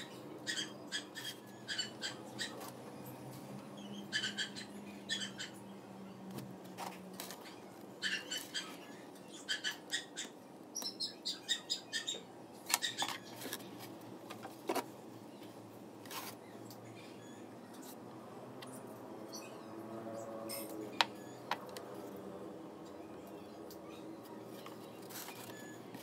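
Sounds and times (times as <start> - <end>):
small bird chirping: 3.8 - 5.8, 7.3 - 13.5.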